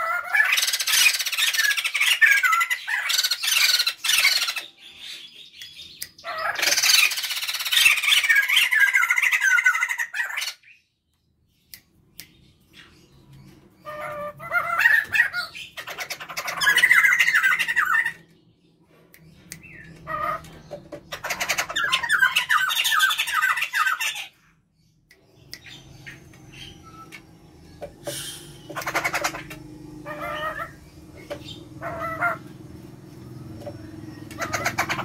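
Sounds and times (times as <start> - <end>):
laughingthrushes chattering: 12.7 - 18.3, 19.2 - 24.4, 25.0 - 35.0.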